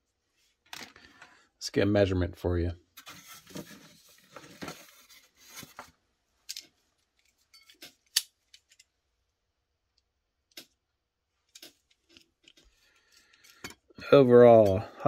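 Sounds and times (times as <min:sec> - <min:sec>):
plastic sprues rustling and rattling: 0:03.0 - 0:08.9.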